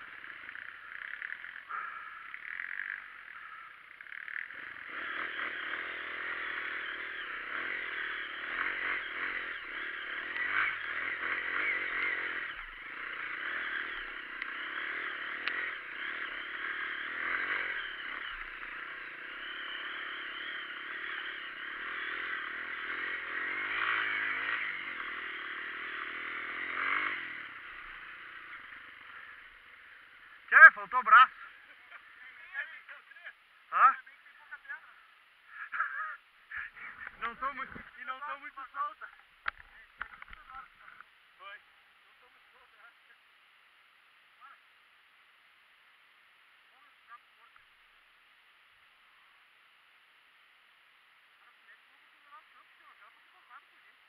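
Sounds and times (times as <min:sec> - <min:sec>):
motorcycle engine revving under load: 0:00.0 - 0:30.6.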